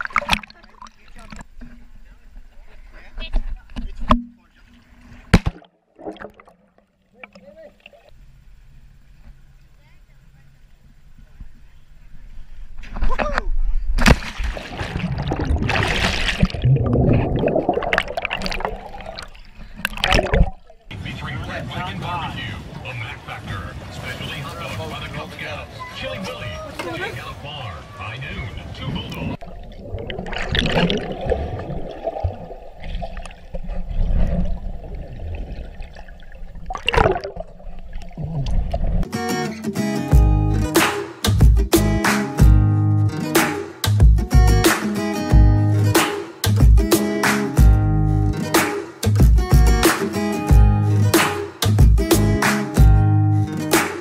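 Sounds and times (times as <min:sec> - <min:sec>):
underwater bubbles and churning: 0:00.0 - 0:01.6, 0:14.3 - 0:20.9, 0:29.2 - 0:39.1.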